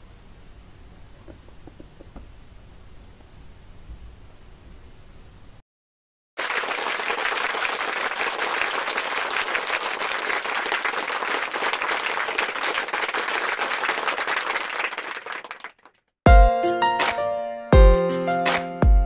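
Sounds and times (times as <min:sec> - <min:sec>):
crowd applause: 0:06.4 - 0:16.0.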